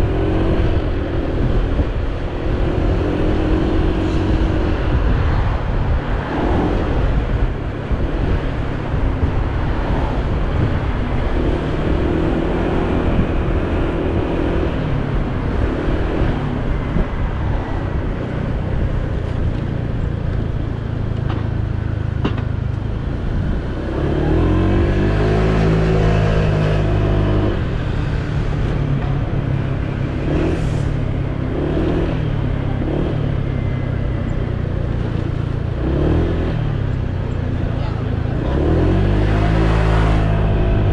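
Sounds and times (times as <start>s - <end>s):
wind and road noise: 0.0s - 40.9s
passing bus engine drone: 22.8s - 40.9s.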